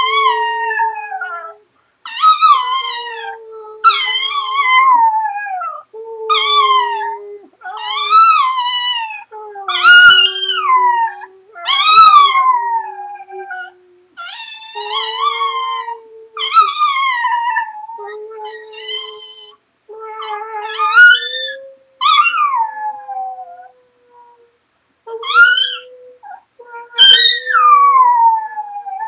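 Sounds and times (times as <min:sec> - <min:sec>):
man howling: 0:00.0 - 0:01.6
small dog howling: 0:00.0 - 0:19.6, 0:20.2 - 0:23.7, 0:25.2 - 0:29.0.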